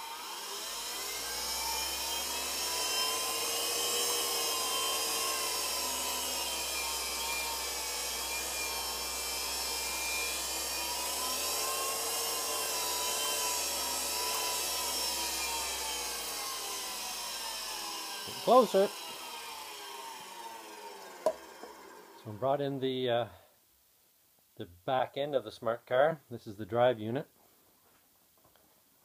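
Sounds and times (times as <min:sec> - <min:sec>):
electric motor whine: 0:00.0 - 0:22.3.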